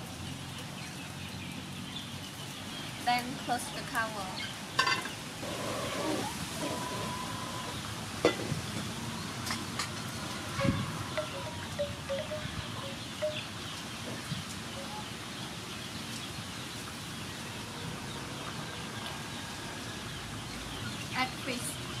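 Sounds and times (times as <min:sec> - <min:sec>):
high chime-like notes: 0:10.5 - 0:13.5.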